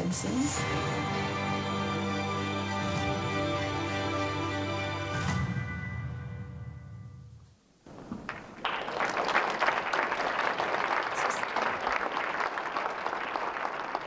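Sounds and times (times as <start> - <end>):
audience applauding: 7.9 - 14.0.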